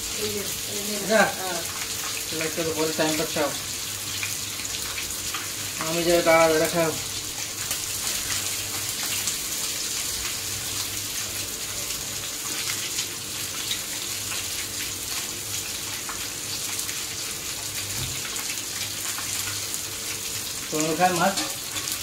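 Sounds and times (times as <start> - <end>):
fish frying in hot oil: 0.0 - 22.0.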